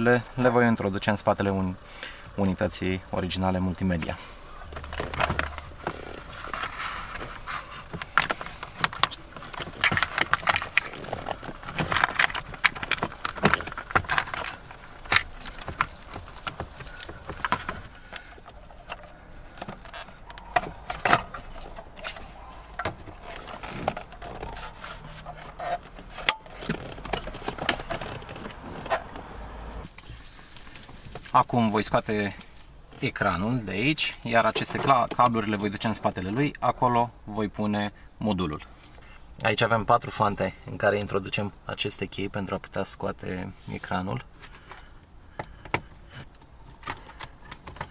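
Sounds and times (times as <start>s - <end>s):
cables scraping against plastic trim: 4.0s - 29.3s, 34.0s - 35.7s.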